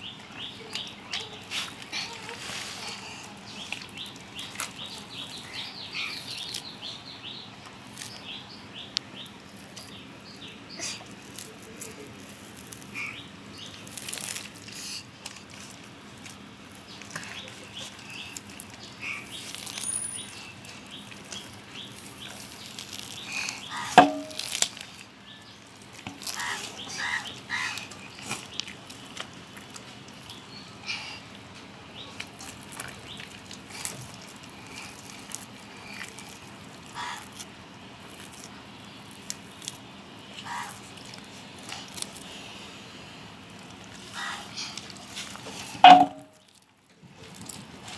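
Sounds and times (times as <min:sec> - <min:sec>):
birds chirping: 0:00.0 - 0:11.4, 0:16.7 - 0:24.5, 0:25.2 - 0:42.7
hands peeling fruit skin: 0:00.6 - 0:06.9, 0:07.6 - 0:10.0, 0:10.8 - 0:30.6, 0:32.0 - 0:42.7, 0:43.5 - 0:47.9.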